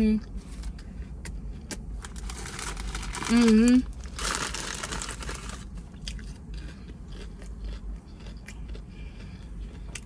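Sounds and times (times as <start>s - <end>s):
person chewing and crunching food: 0.2s - 10.0s.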